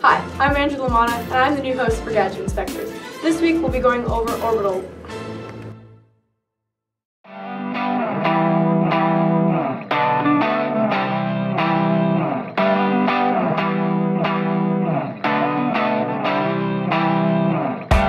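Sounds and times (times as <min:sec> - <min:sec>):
effects-laden guitar playing chords: 0:07.3 - 0:18.0.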